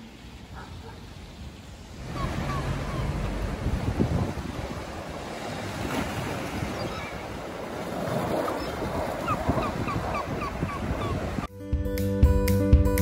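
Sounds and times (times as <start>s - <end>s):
waves splashing on stone jetty: 0.0s - 11.5s
wind buffeting microphone: 1.9s - 11.5s
gull calling: 2.0s - 3.5s, 6.6s - 7.4s, 8.5s - 11.5s.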